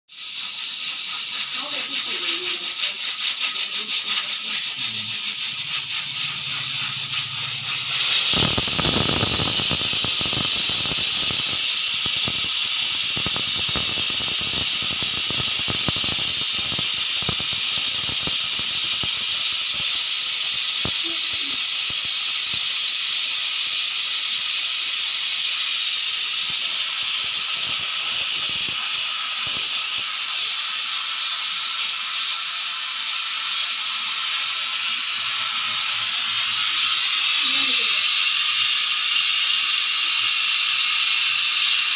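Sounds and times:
sputtering crackling: 0.1 - 22.8
pressure cooker hissing whistle: 0.1 - 41.9.

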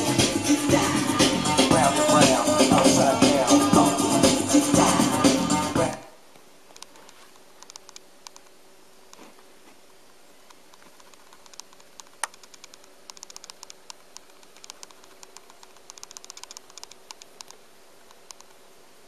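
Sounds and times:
light irregular clicks and ticks: 6.3 - 9.2, 10.4 - 18.6.

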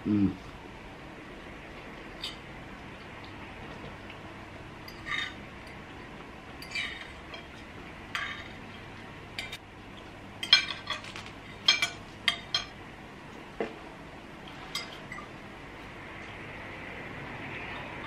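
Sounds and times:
cutlery clinking on plates: 10.4 - 12.8.

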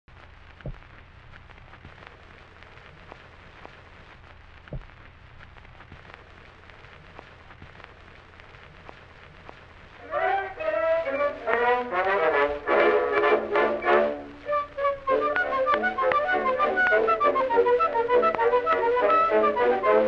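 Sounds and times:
phonograph surface hiss and crackle: 0.0 - 20.0
record pops: 0.1 - 20.0
brass band music: 10.0 - 20.0.

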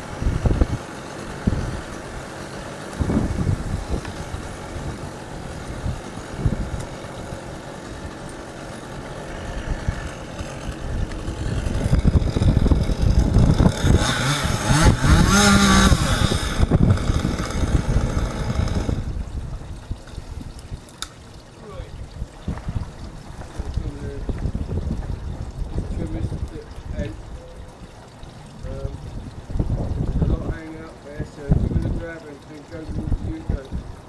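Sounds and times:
chainsaw revving: 0.0 - 19.2.

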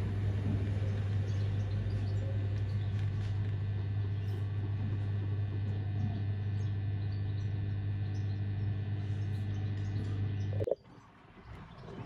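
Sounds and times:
washing machine humming: 0.0 - 12.0.

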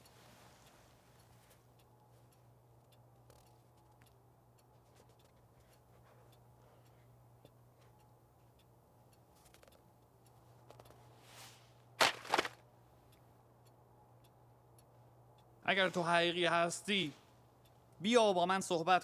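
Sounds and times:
faint ticks: 0.0 - 11.1
steady low hum: 0.0 - 19.0.

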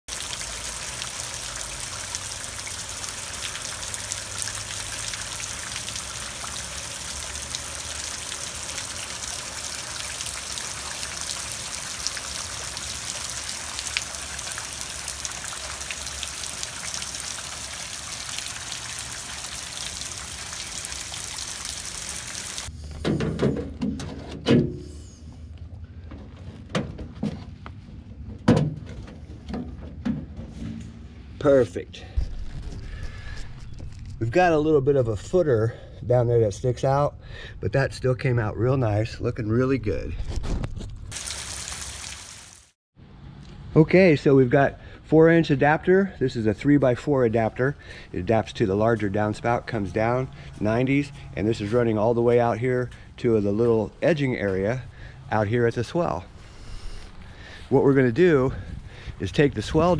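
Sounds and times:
water rushing and trickling: 0.1 - 22.7, 41.1 - 42.8.

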